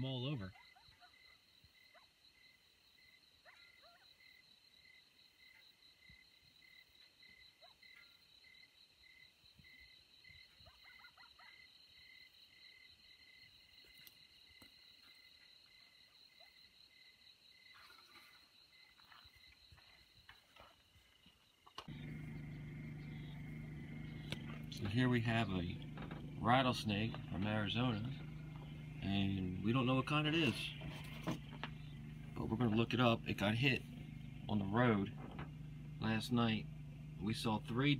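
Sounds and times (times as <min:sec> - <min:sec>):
insects trilling: 0:00.2 - 0:37.9
faint short calls: 0:21.9 - 0:37.7.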